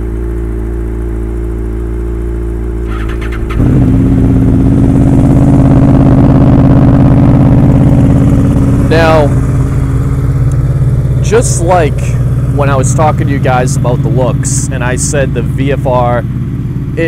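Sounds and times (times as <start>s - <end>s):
motorcycle engine catching and idling: 0.0s - 17.0s
motorcycle engine idling: 0.0s - 17.0s
motorcycle starter cranking: 2.9s - 3.8s.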